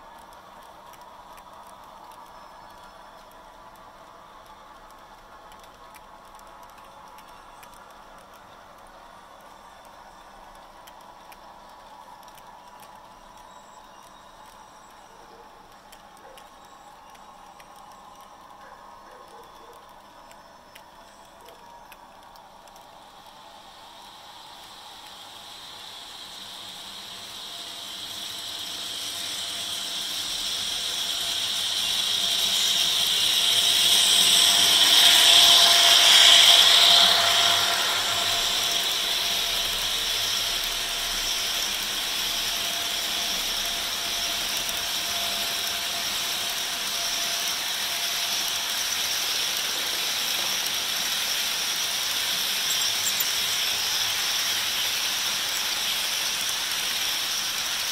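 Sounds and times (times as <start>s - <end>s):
model train motor whining: 0.0s - 57.9s
wheels clicking over track: 0.0s - 57.9s.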